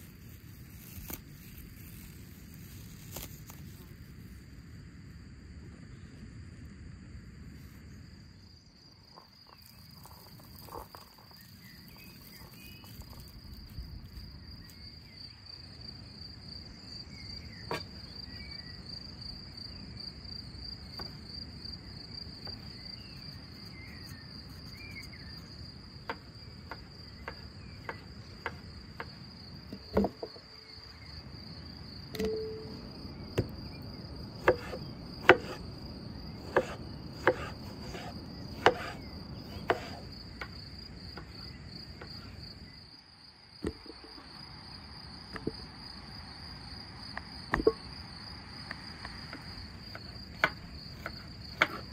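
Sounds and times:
insects trilling: 0:00.0 - 0:51.9
knife on wooden cutting board: 0:34.4 - 0:35.6, 0:36.4 - 0:40.0.

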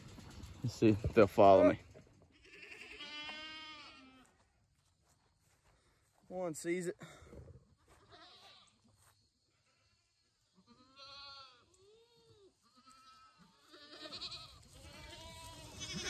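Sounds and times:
goats bleating: 0:02.3 - 0:04.4, 0:07.9 - 0:08.8, 0:10.5 - 0:16.0.

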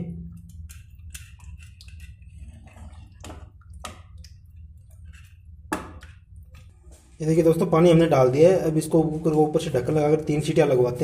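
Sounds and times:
liquid sloshing in a pot: 0:00.0 - 0:07.7.

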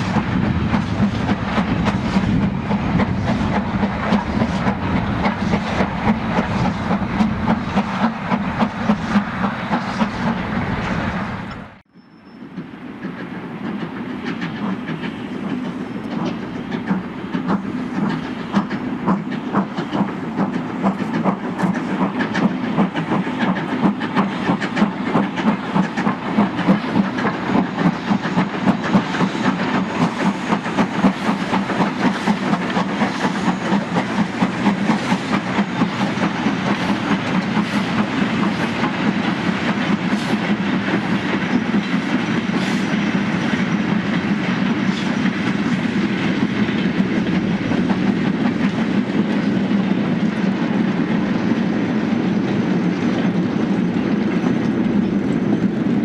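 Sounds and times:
freight train rumble: 0:00.0 - 0:56.0
wheels clicking over rail joints: 0:12.5 - 0:51.1.

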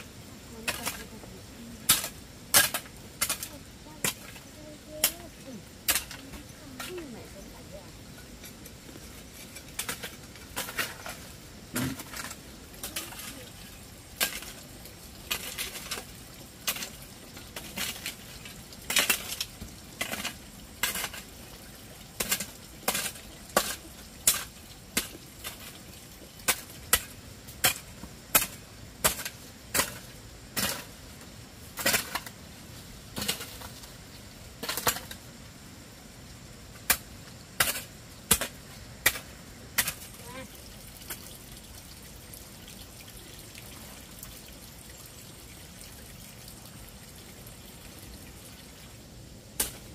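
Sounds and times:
hoe chopping and scraping earth: 0:01.9 - 0:04.4, 0:09.3 - 0:13.3, 0:22.2 - 0:25.7, 0:26.5 - 0:30.9, 0:31.8 - 0:32.3, 0:33.2 - 0:33.8, 0:36.8 - 0:40.1.

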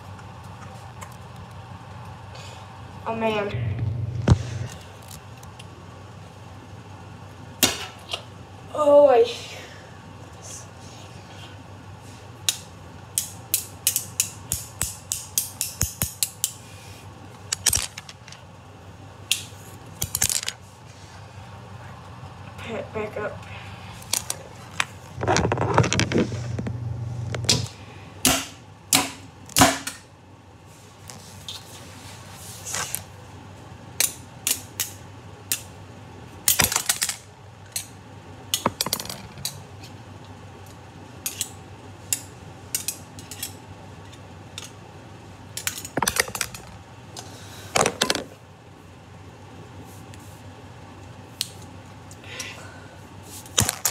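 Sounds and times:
low hum: 0:00.0 - 0:05.2, 0:21.0 - 0:28.2.

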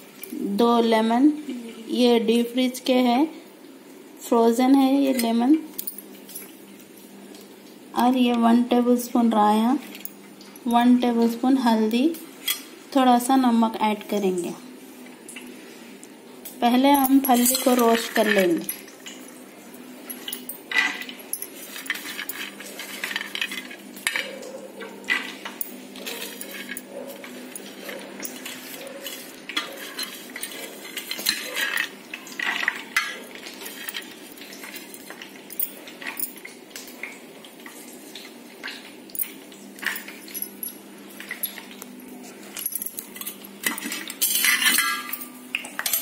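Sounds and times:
peanuts clinking on metal: 0:16.9 - 0:18.9, 0:25.1 - 0:36.4, 0:42.6 - 0:46.0.

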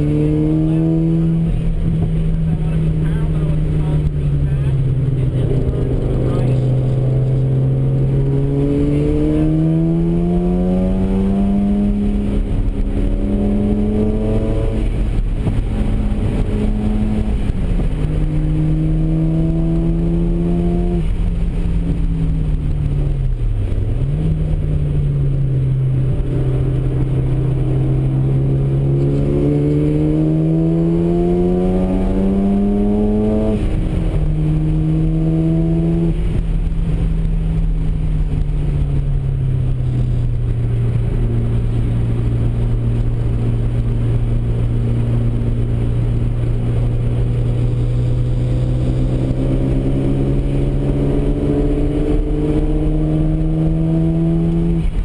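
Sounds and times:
road and wind noise: 0:00.0 - 0:55.0
rotary engine revving: 0:26.1 - 0:36.2, 0:46.6 - 0:55.0.

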